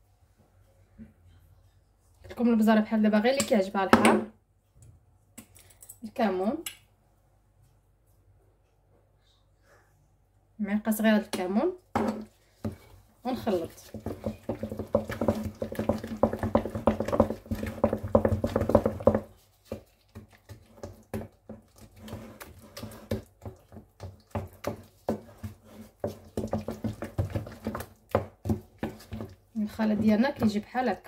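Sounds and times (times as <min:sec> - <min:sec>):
wooden spoon stirring wet mash: 0:11.4 - 0:31.0.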